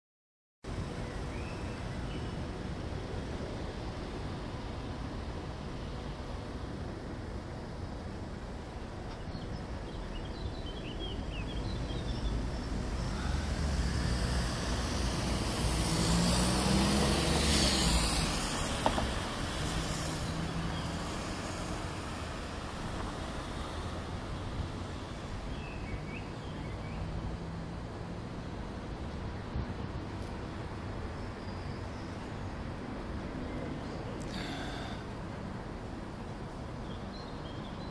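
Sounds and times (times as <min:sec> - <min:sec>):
city road traffic: 0:00.6 - 0:37.9
vehicle passing close by: 0:11.7 - 0:28.2.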